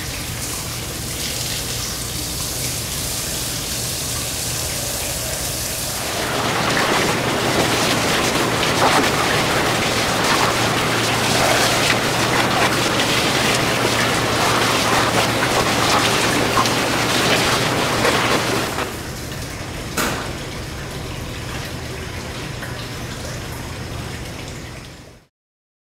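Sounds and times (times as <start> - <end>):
water jet spraying on metal: 1.4 - 19.4.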